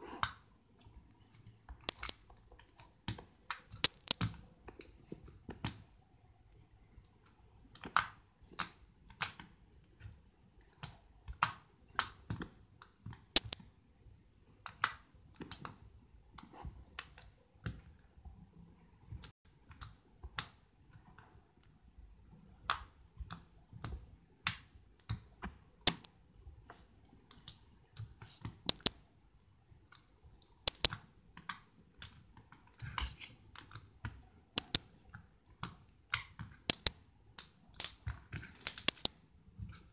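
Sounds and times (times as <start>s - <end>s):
slime clicking and popping: 1.9s - 2.2s, 3.8s - 4.3s, 13.4s - 13.6s, 25.9s - 26.1s, 28.7s - 29.0s, 30.7s - 31.0s, 34.6s - 34.8s, 36.7s - 37.0s, 38.7s - 39.1s.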